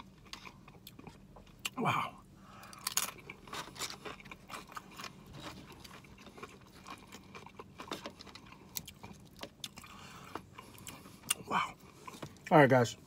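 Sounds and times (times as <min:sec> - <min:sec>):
chewing chip crunches: 0:02.6 - 0:11.4.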